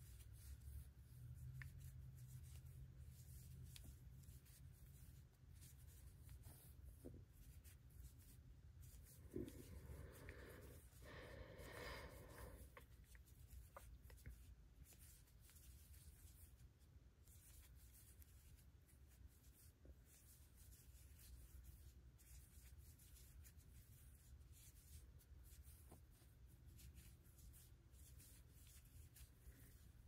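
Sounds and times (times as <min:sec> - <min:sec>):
crochet hook rubbing yarn: 0:00.0 - 0:11.0
low room hum: 0:00.0 - 0:30.0.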